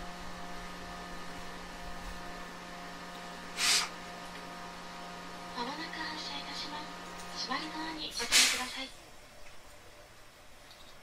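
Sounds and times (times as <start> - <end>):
electrical hum: 0.0 - 11.0
loud burst of hiss: 3.5 - 4.0, 8.1 - 8.9.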